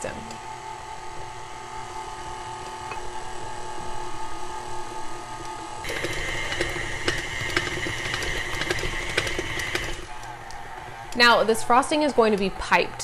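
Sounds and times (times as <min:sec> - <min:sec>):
electric stand mixer running: 0:05.7 - 0:11.4
mixer beater rattling: 0:05.8 - 0:10.2.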